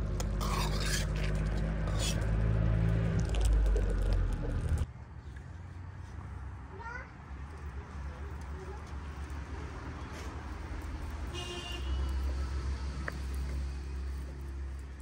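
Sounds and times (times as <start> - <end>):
liquid boiling and bubbling: 0.0 - 4.9
steady low rumble: 0.0 - 4.9.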